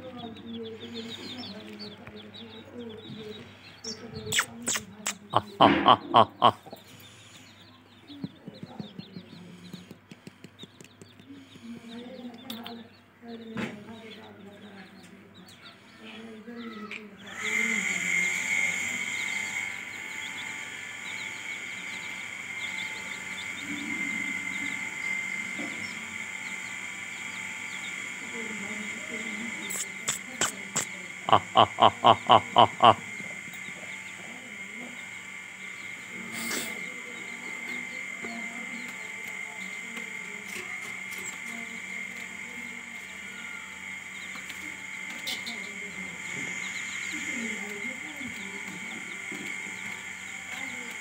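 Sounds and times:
high-pitched buzzing drone: 0:00.0 - 0:10.5, 0:15.7 - 0:51.0
hen clucking: 0:00.0 - 0:13.0, 0:28.9 - 0:34.3
chicks peeping: 0:00.0 - 0:51.0
hen clucking softly: 0:02.9 - 0:07.6, 0:29.7 - 0:33.0
steady high whine: 0:17.5 - 0:51.0.

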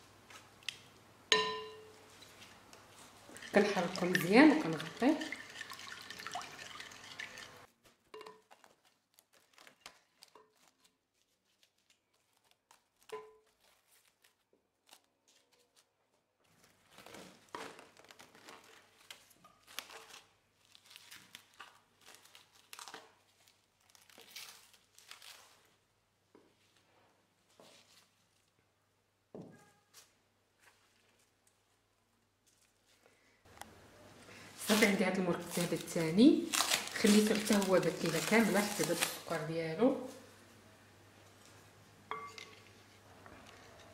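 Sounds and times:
cling film crinkling and tearing: 0:07.6 - 0:25.8, 0:34.6 - 0:39.6.

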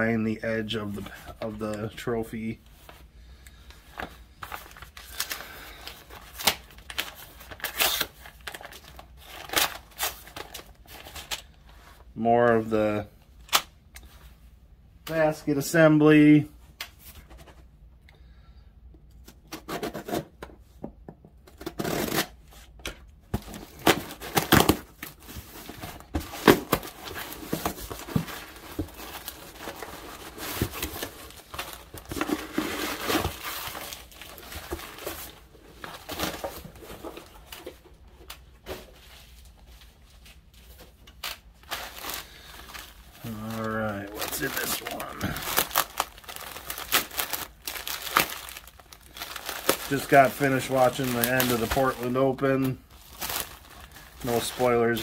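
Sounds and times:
plastic bags crinkling: 0:23.5 - 0:37.7, 0:40.7 - 0:55.0.

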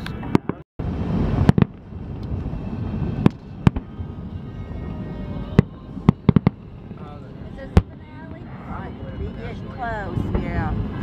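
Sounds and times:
fireworks bursting: 0:00.1 - 0:07.0
steady low background noise: 0:00.8 - 0:11.0.

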